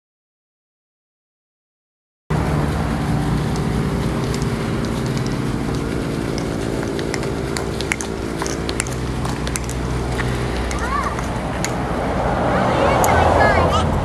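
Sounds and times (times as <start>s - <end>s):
low machine hum: 2.3s - 14.0s
faint clicks and ticks: 3.2s - 11.9s.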